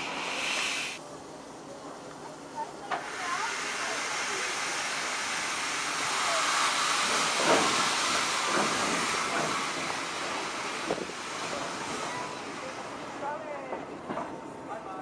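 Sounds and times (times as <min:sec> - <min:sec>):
steam hissing from locomotive: 0:00.0 - 0:01.0, 0:02.8 - 0:13.9
steam locomotive chuffs: 0:02.9 - 0:14.4.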